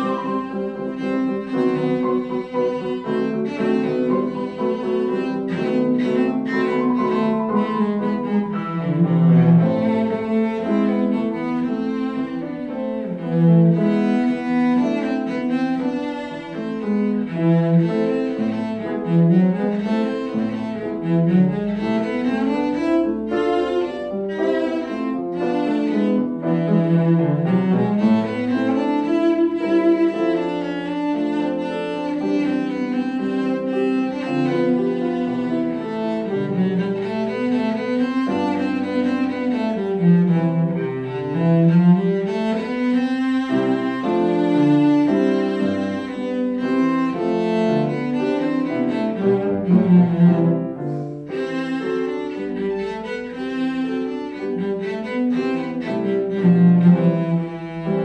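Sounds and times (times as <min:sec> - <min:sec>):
cello bowed running passages: 0:00.0 - 0:58.0
piano accompaniment: 0:00.0 - 0:58.0.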